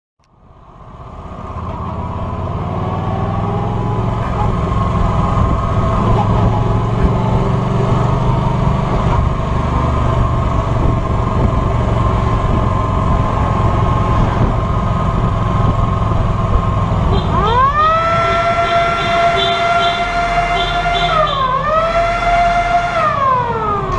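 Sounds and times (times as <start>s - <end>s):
wind and road noise: 0.2s - 23.9s
motorcycle engine running: 0.8s - 21.6s
siren winding up: 17.2s - 23.9s.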